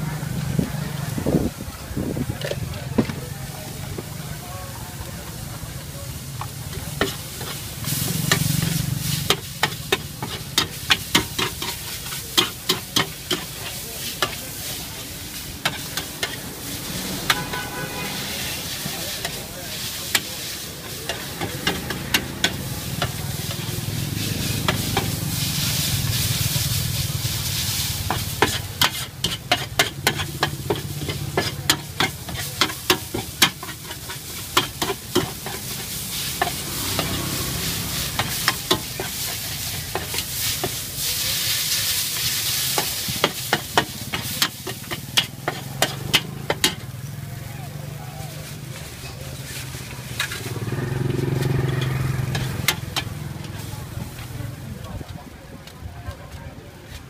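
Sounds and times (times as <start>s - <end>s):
frying sizzle: 0.0s - 55.1s
metal spatula clacking on a pan: 9.3s - 14.4s, 28.0s - 35.7s, 42.8s - 47.0s.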